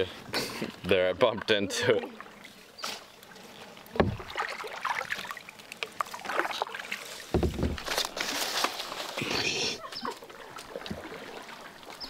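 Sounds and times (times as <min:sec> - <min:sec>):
paddle splashing in water: 0:00.4 - 0:12.0
dull knocks: 0:04.0 - 0:04.3, 0:07.3 - 0:07.9.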